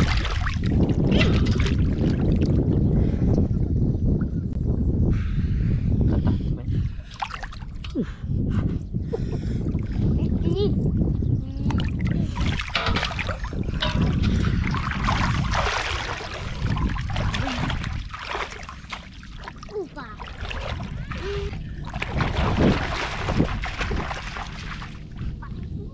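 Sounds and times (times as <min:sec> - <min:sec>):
river water splashing: 0:00.0 - 0:00.6, 0:12.5 - 0:25.2
wind rumbling on microphone: 0:00.0 - 0:25.9.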